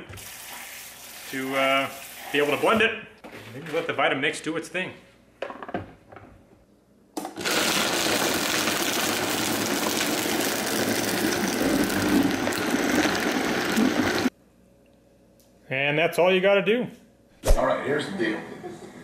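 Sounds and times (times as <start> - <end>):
blender blending ice: 7.3 - 14.3.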